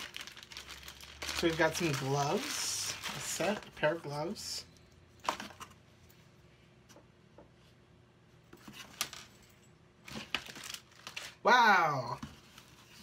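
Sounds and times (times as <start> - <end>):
rustles and light taps of packaging: 0.0 - 3.8.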